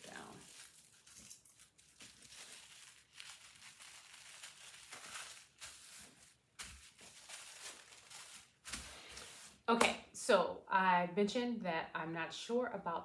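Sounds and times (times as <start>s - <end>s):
tissue paper rustling: 0.0s - 9.6s.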